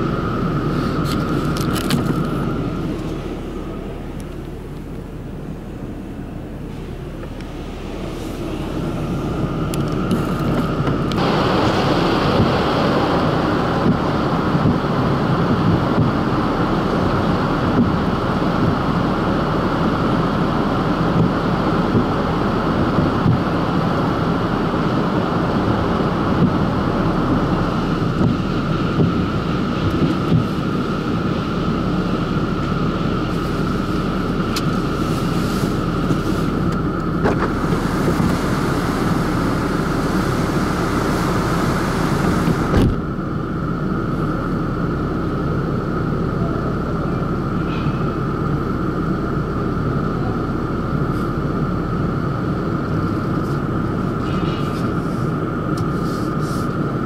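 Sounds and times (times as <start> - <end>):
car wash machinery rumble: 0.0 - 57.0
constant whine: 0.0 - 57.0
water spray hiss: 37.5 - 42.7.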